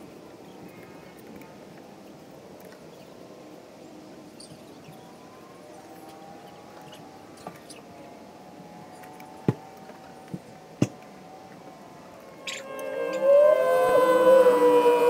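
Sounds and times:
loud gliding tones: 0:12.2 - 0:15.0.

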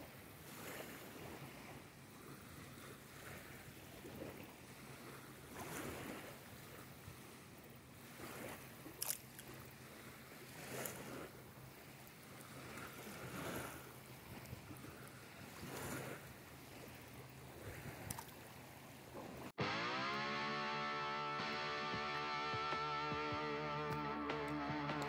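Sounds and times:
small waves lapping at shore: 0:00.0 - 0:19.6.

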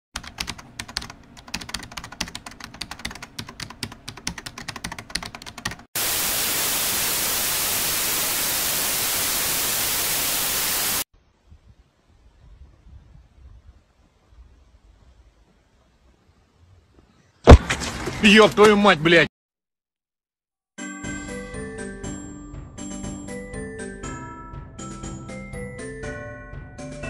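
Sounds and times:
rapid dense clicking: 0:00.2 - 0:05.9
loud static hiss: 0:06.0 - 0:12.2.

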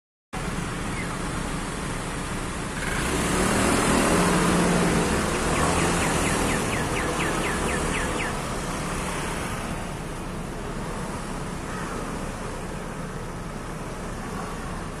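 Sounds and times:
road traffic rumble: 0:00.4 - 0:15.0
bird chirping: 0:05.1 - 0:08.5.

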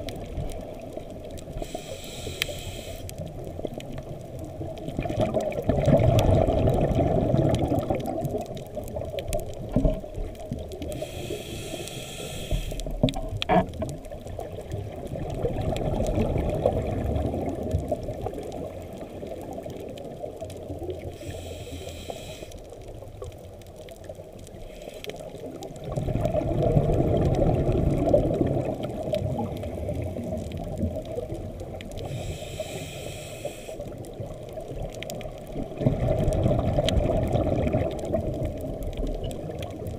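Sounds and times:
exhaled air bubbling underwater: 0:00.0 - 0:39.9
regulator inhalation hiss: 0:01.6 - 0:03.1, 0:10.9 - 0:12.9, 0:21.1 - 0:22.6, 0:24.6 - 0:25.2, 0:32.0 - 0:33.9.

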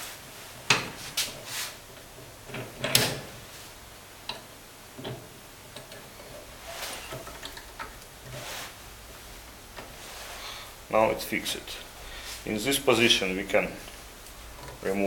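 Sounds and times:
metal clicks and knocks: 0:02.5 - 0:03.3.

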